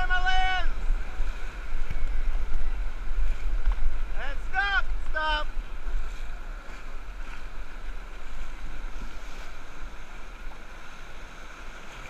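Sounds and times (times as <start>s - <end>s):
river rapids rushing: 0.0s - 12.0s
wind rumble on microphone: 0.0s - 12.0s.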